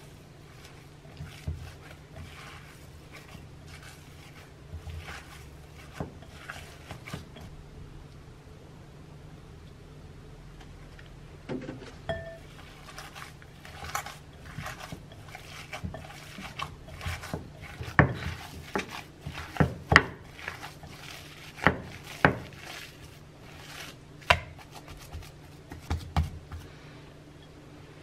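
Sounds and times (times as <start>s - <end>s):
hand squishing meat mixture: 0.0s - 7.6s, 12.4s - 26.8s.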